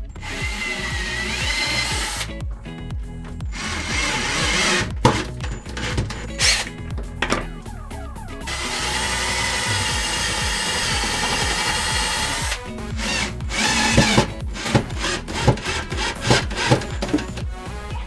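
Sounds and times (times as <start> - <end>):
cordless drill running: 0.0 - 2.3, 3.5 - 6.7, 8.5 - 17.4.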